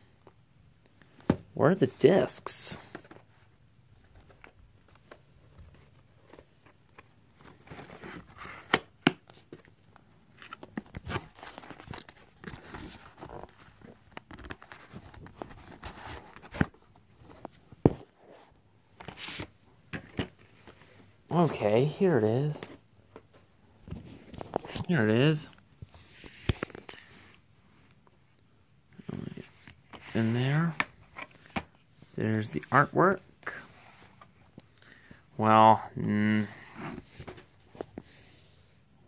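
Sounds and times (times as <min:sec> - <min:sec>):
cardboard and plastic rustling: 0:02.8 - 0:21.1.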